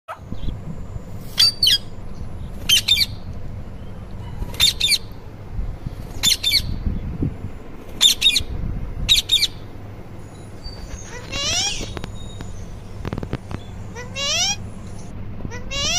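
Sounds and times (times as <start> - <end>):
parakeet squawking: 1.4 - 1.8, 2.7 - 3.2, 4.2 - 5.1, 6.2 - 6.8, 8.0 - 8.5, 9.1 - 9.6, 10.6 - 12.0, 13.6 - 15.9.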